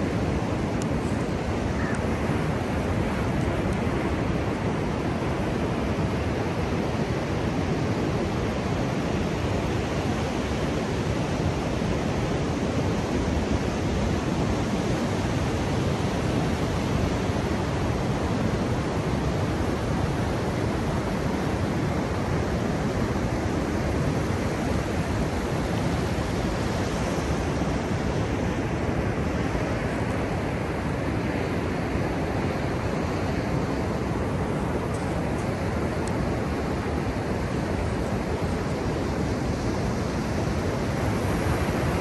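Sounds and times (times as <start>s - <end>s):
distant ocean surf: 0.0s - 42.0s.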